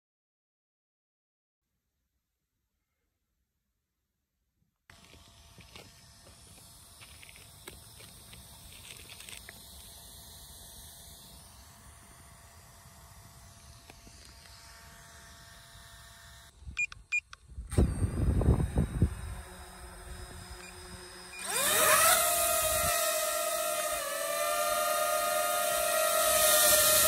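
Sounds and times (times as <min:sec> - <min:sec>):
drone motors rumbling and whining: 0:04.9 - 0:16.5, 0:17.7 - 0:27.0.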